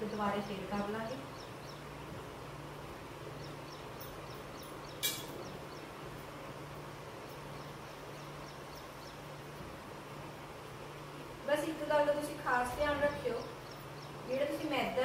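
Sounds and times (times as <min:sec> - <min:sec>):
utensil clinking dish: 0:05.0 - 0:05.4.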